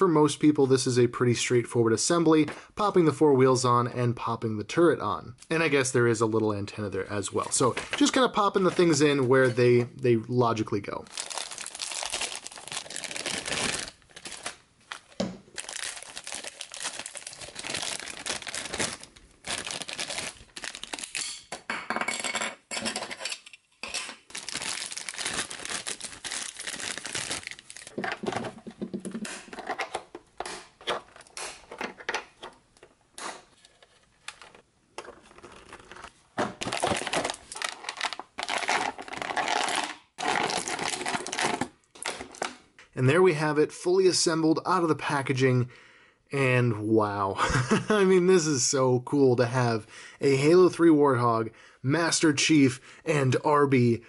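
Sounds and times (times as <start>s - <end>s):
plastic bags crinkling: 11.0s - 21.3s, 24.3s - 28.6s, 34.2s - 42.6s.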